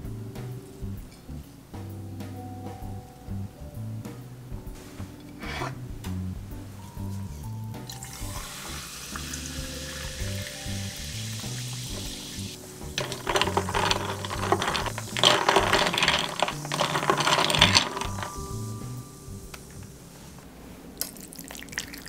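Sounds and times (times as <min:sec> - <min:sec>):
soft background music: 0:00.0 - 0:20.9
sparkling water fizzing: 0:07.9 - 0:15.3, 0:21.0 - 0:22.0
ice clattering against glass: 0:13.0 - 0:18.9.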